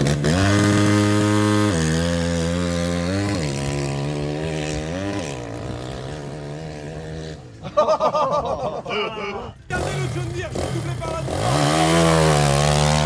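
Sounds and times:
vehicle engine running: 9.6 - 13.0.

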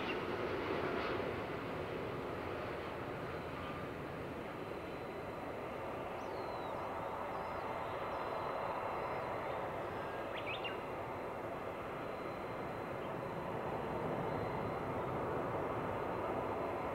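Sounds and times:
jet engines rushing: 0.0 - 16.9
small birds chirping: 6.1 - 11.0.

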